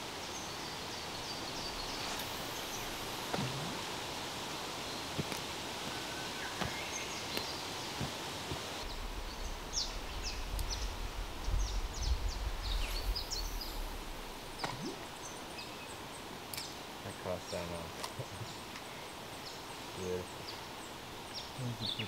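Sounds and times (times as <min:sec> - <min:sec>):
steady hiss: 0:00.0 - 0:22.0
low rumble: 0:08.8 - 0:15.2.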